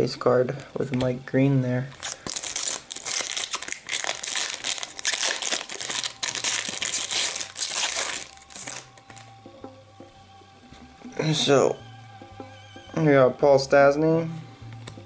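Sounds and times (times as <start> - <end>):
foil wrapper crinkling: 1.9 - 9.2.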